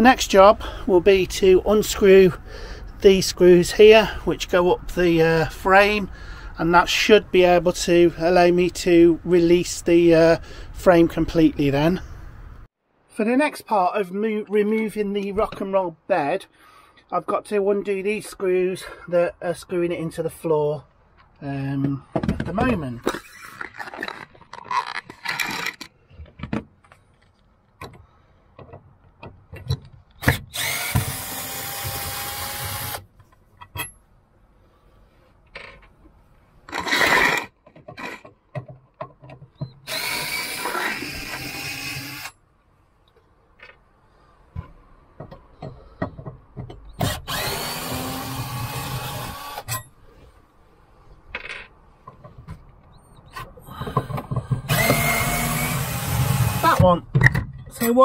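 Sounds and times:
cordless drill whining: 30.2s - 33.0s, 39.8s - 42.3s, 47.0s - 49.8s, 53.8s - 56.8s.

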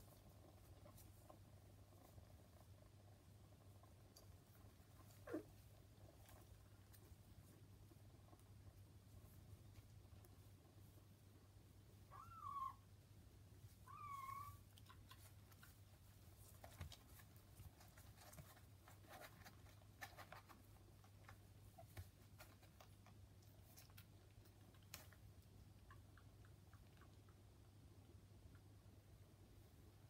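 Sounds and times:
kittens rustling on newspaper: 13.8s - 25.2s.

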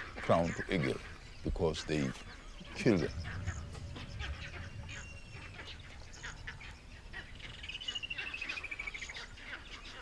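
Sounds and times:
bird alarm cackling: 0.0s - 10.0s.

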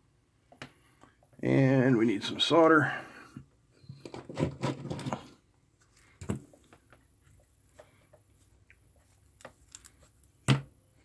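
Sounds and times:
rustles and clicks of tools: 3.8s - 10.7s.

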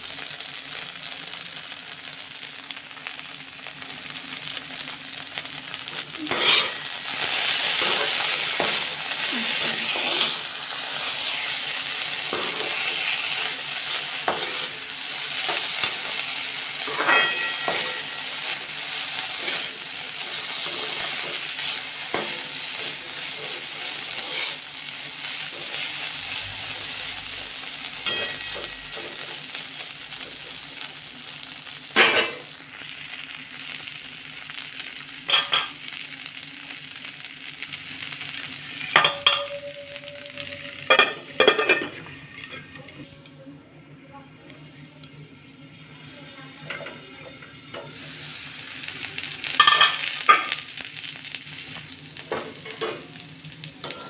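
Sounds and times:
food sizzling in hot oil: 0.0s - 43.1s, 44.6s - 54.0s
metal spatula scraping a pan: 6.3s - 24.7s
ringing metal clank: 38.9s - 42.0s.

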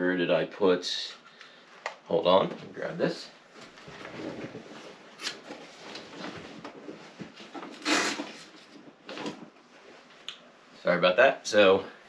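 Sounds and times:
rummaging knocks rustles and clatters: 3.5s - 9.7s.

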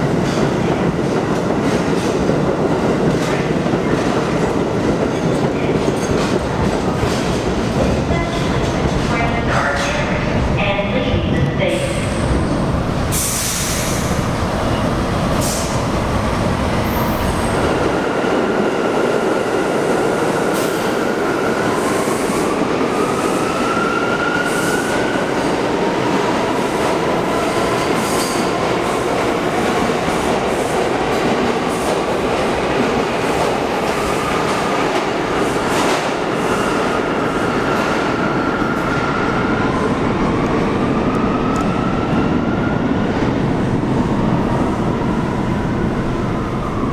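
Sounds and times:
subway train wheels rumbling on track: 0.0s - 46.9s.

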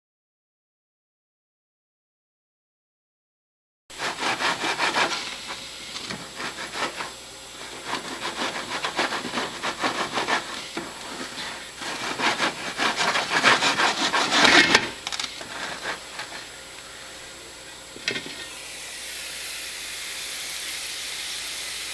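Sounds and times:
pan scraping on burner: 3.9s - 16.6s, 18.0s - 18.6s
hot pan hissing: 3.9s - 21.9s.

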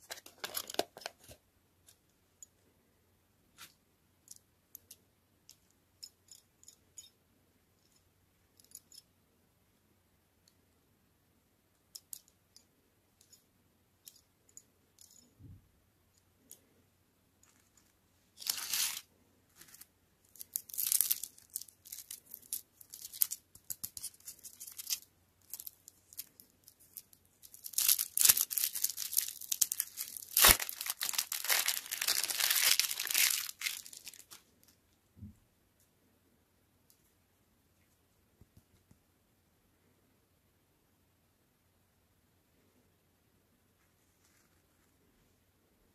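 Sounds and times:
plastic wrapper crinkling and tearing: 0.0s - 1.4s, 18.4s - 19.0s, 19.7s - 26.3s, 27.0s - 34.4s.

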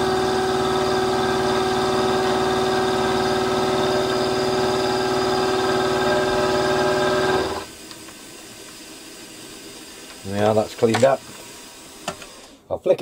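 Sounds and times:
milling machine motor whine: 0.0s - 7.7s.

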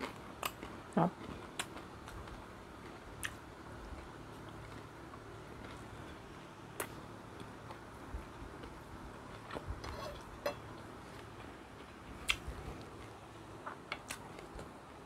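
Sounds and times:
close chewing: 0.0s - 6.2s.

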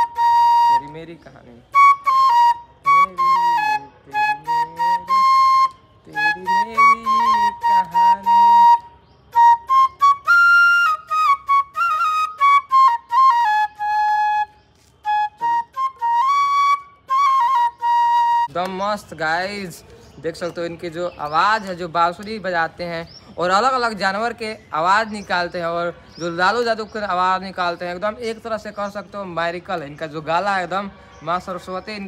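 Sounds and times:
bamboo flute melody: 0.0s - 18.5s.

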